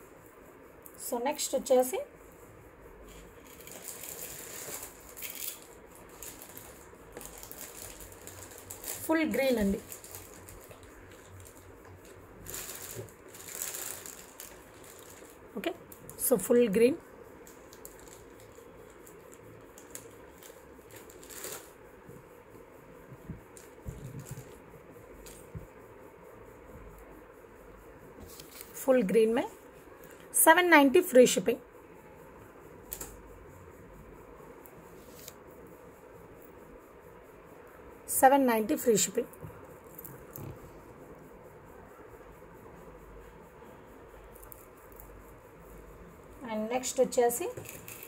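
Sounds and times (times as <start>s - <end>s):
steady low hiss: 0.0s - 48.0s
bead necklace rustling and clicking: 3.4s - 15.4s, 17.4s - 21.7s, 47.5s - 48.0s.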